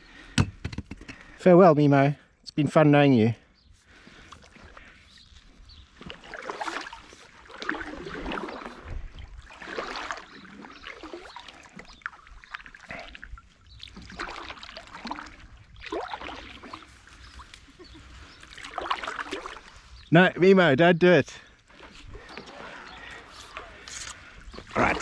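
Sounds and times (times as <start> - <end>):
paddle splashing in water: 3.9 - 20.0, 21.6 - 25.0.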